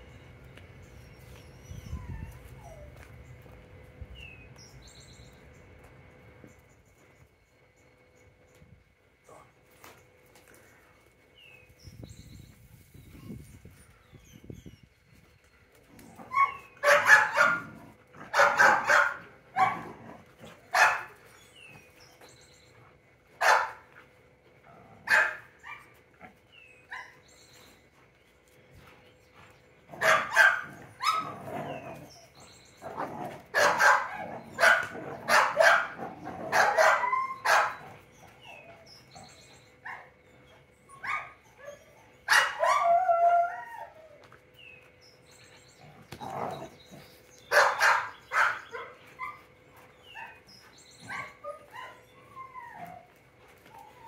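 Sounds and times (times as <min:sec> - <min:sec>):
dog barking: 0:16.8 - 0:17.7, 0:18.3 - 0:19.9, 0:20.8 - 0:21.1, 0:23.4 - 0:23.8, 0:25.1 - 0:25.4, 0:30.0 - 0:31.4, 0:33.6 - 0:37.8, 0:42.3 - 0:42.8, 0:47.5 - 0:49.0.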